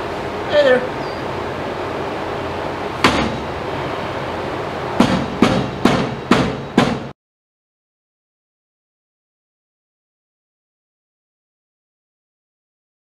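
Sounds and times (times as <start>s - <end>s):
rubber mallet striking steel: 3.0s - 3.5s, 5.0s - 7.2s.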